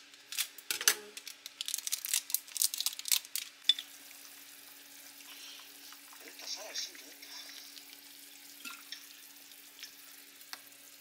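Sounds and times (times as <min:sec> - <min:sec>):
faint steady hum: 0:00.0 - 0:11.0
soup boiling with popping bubbles: 0:07.5 - 0:11.0.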